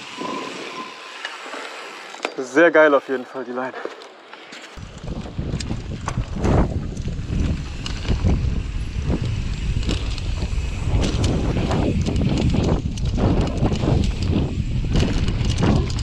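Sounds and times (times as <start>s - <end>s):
tyres on dirt and leaves: 0.0s - 16.0s
bike chain rattling and clicking: 4.8s - 16.0s
wind buffeting microphone: 4.8s - 16.0s.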